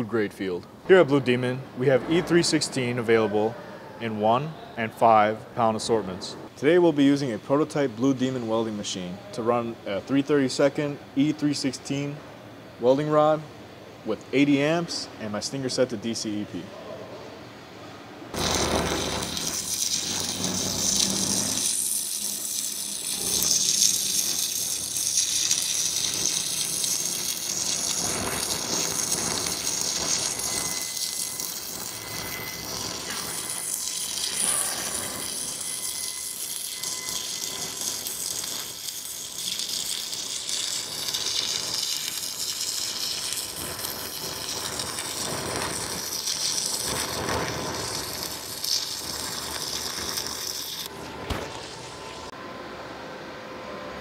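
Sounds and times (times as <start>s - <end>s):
welding arc crackling hiss: 18.3s - 52.3s.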